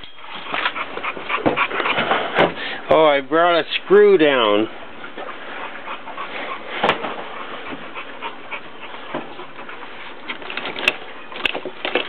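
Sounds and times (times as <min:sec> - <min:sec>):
tools rustling and clattering: 0:10.2 - 0:12.0.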